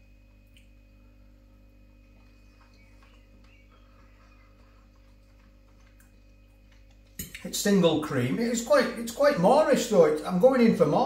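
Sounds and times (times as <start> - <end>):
man chewing food: 0.0 - 7.5
low electrical hum: 0.0 - 11.0.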